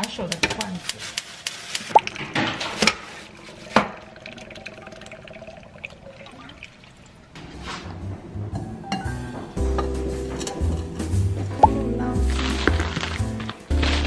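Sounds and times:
liquid pouring and splashing: 1.6 - 7.4.

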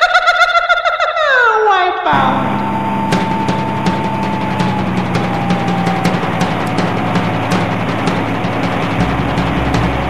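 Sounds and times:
held tone falling in pitch: 2.1 - 10.0
dense low bass: 2.2 - 10.0
drum kit beat: 2.2 - 10.0.

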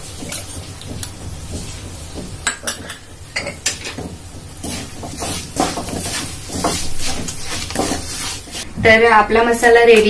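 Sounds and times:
metal spatula scraping pan: 2.7 - 8.7.

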